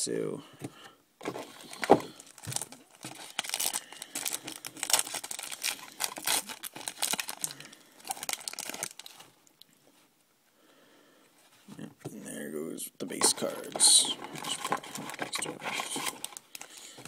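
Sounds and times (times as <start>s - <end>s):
foil wrapper tearing and crinkling: 1.6s - 9.3s.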